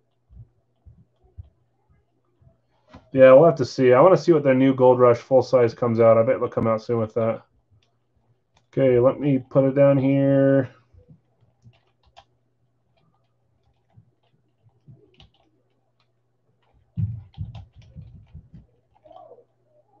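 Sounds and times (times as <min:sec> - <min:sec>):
faint low hum: 0:00.0 - 0:20.0
typing on computer keyboard: 0:11.0 - 0:19.4.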